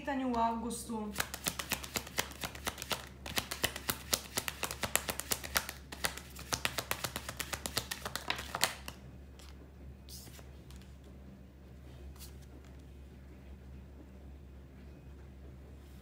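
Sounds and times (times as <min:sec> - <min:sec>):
cards being shuffled: 0:01.1 - 0:11.0, 0:12.1 - 0:12.8.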